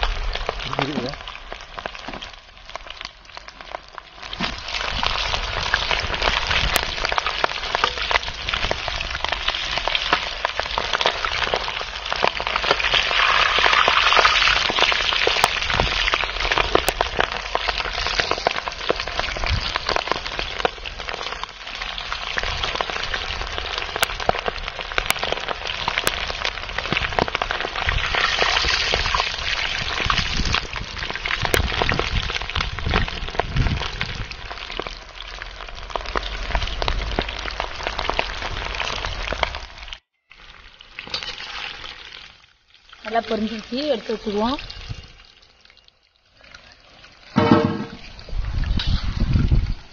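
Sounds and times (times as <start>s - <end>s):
deep-frying sizzle with pops: 0.0s - 49.9s.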